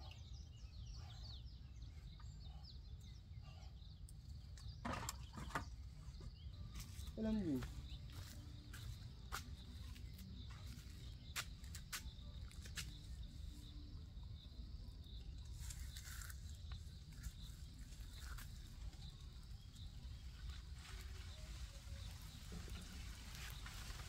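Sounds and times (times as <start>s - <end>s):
faint high-pitched chirping: 0.0s - 24.0s
branch rustling: 20.1s - 24.0s.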